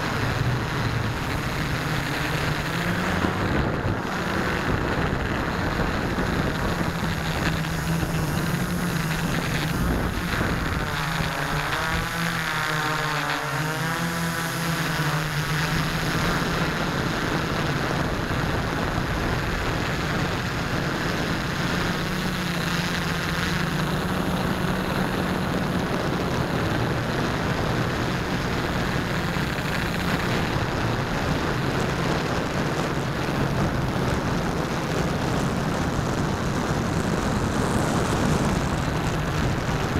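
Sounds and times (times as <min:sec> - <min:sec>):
wind rushing: 0:00.0 - 0:12.5
model airplane motor humming: 0:00.0 - 0:39.9.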